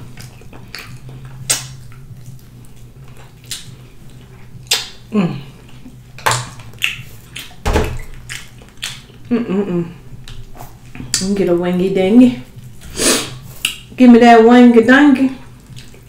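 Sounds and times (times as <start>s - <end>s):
person chewing with wet smacks: 0.0s - 11.5s, 12.4s - 14.0s, 15.4s - 16.0s
steady low hum: 0.0s - 16.0s
person humming: 5.1s - 5.7s, 9.3s - 10.1s.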